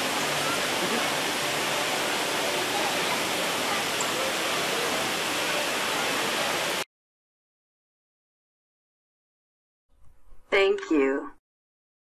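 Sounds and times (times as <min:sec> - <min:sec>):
waterfall rushing: 0:00.0 - 0:06.8.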